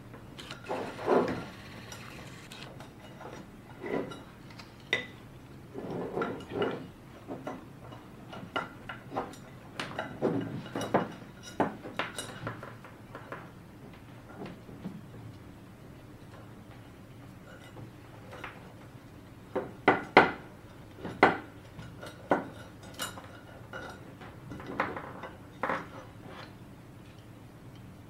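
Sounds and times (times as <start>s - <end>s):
small tools on wooden table: 0.4s - 2.8s.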